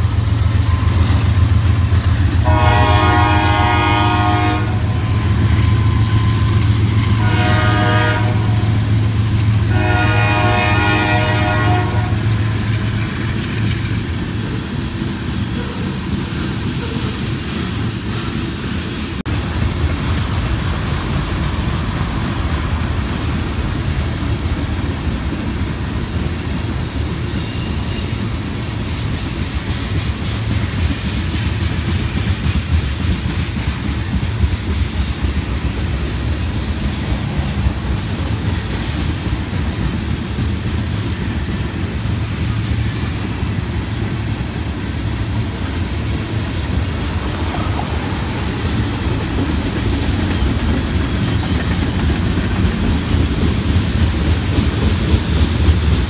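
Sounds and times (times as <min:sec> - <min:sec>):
freight train rumbling past: 0:00.0 - 0:56.0
high wheel squeal: 0:05.0 - 0:07.2, 0:24.8 - 0:25.6, 0:26.6 - 0:28.4, 0:36.2 - 0:37.6, 0:43.6 - 0:50.6
wheels clicking over rail joints: 0:12.3 - 0:44.8, 0:45.5 - 0:56.0.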